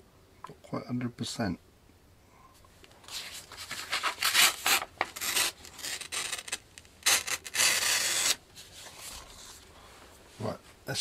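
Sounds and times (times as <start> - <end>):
paper rustling: 3.0 - 9.7
knife slicing through paper: 3.1 - 8.4.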